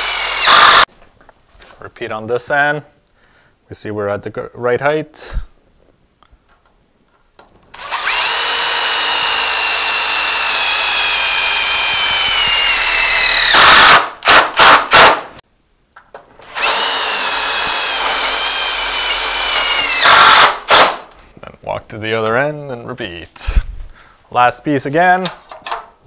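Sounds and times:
cordless drill driving screws: 0.0s - 0.9s, 7.7s - 15.1s, 16.4s - 21.0s.

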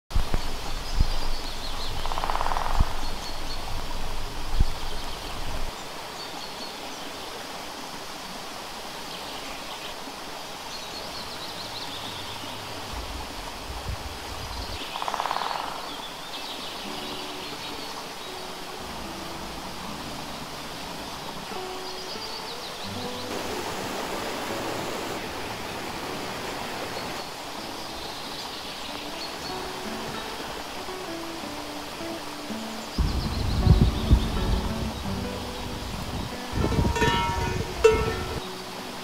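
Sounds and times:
birds chirping and trilling: 0.3s - 7.4s, 9.1s - 13.4s, 14.4s - 23.5s, 24.5s - 38.9s
steady rushing noise: 11.6s - 16.0s, 17.6s - 32.1s, 32.9s - 38.9s.

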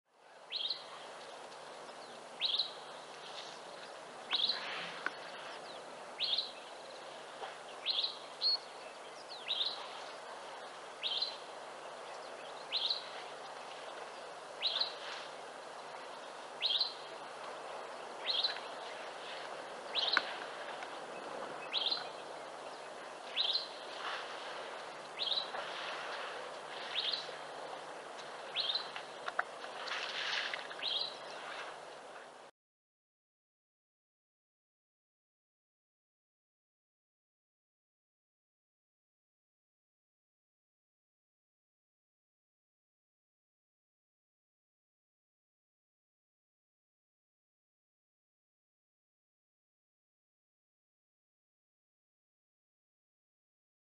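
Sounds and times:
steady background hiss: 0.2s - 32.5s.

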